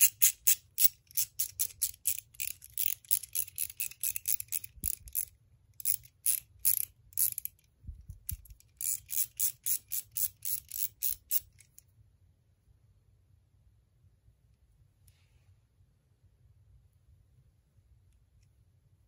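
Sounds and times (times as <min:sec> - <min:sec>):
ratchet clicking: 0:00.0 - 0:07.6, 0:08.3 - 0:11.8.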